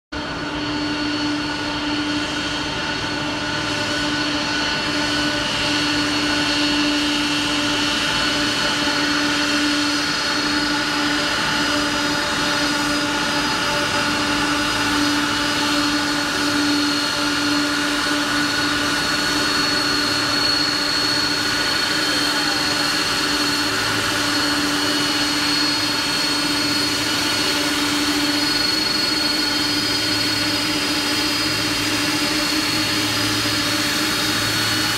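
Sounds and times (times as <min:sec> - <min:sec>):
jet engines running: 0:00.2 - 0:34.9.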